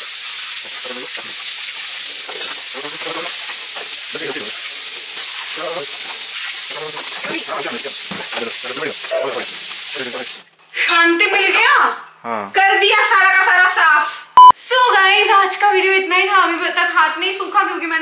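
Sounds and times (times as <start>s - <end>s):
steel dishes being rinsed: 0.0s - 10.5s
tap running into steel sink: 8.0s - 8.6s.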